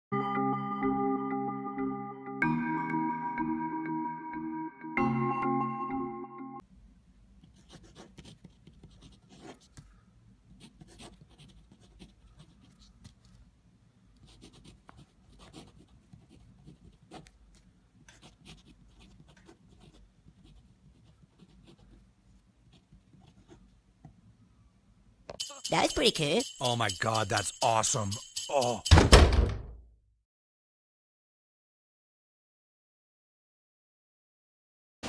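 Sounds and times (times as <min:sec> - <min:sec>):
pen scratching on paper: 0:07.4 - 0:09.9, 0:10.6 - 0:13.3, 0:14.2 - 0:22.1, 0:22.7 - 0:23.7.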